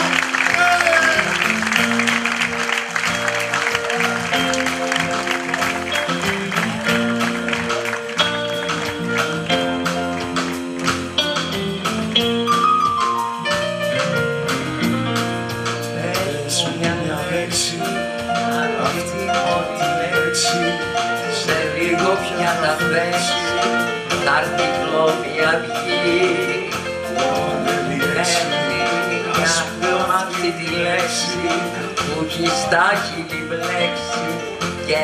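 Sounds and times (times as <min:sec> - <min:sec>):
audience applause: 0:00.0 - 0:11.7
live rock band playing: 0:00.0 - 0:35.0.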